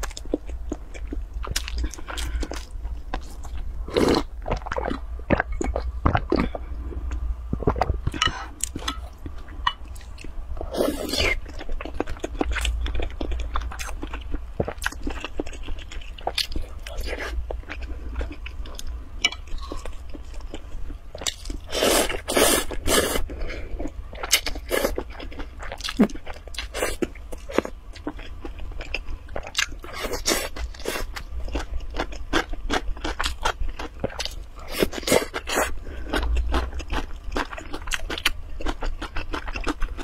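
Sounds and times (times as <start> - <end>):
slurping and chewing noodles: 21.2 - 40.0.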